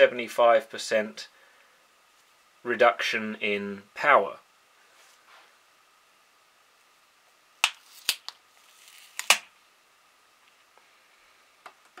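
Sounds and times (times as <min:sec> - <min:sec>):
pad peeling rustle: 0:07.8 - 0:09.4.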